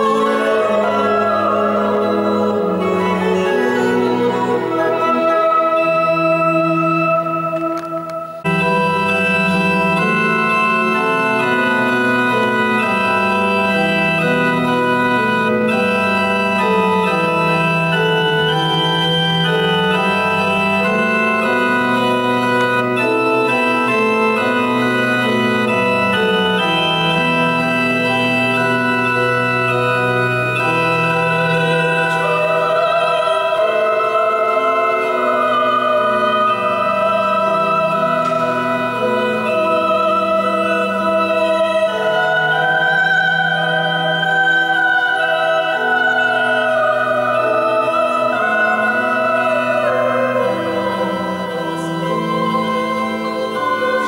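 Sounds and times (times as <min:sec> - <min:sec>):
woman singing with vibrato: 0:00.0 - 0:08.1
keyboard playing organ chords: 0:00.0 - 0:54.0.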